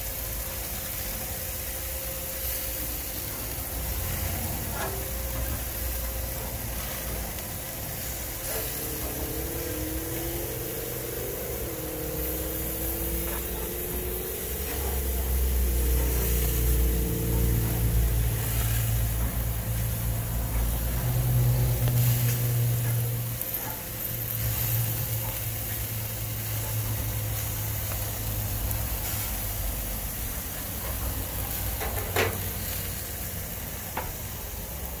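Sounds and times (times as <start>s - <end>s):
skewers sizzling on a grill: 0.0s - 35.0s
low rumble: 3.3s - 25.3s.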